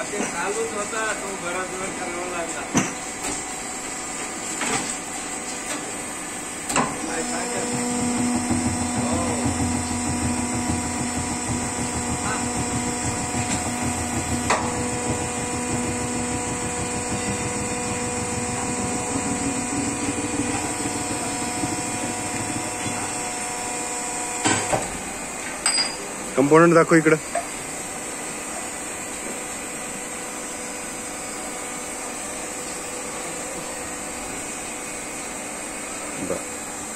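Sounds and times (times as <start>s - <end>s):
machine drive humming: 6.6s - 25.3s.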